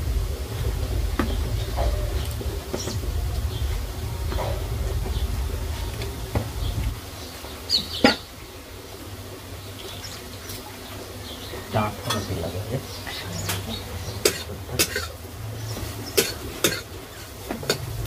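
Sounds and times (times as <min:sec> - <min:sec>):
low hum: 0:00.0 - 0:18.0
metal utensils clinking: 0:12.0 - 0:12.6, 0:13.4 - 0:18.0.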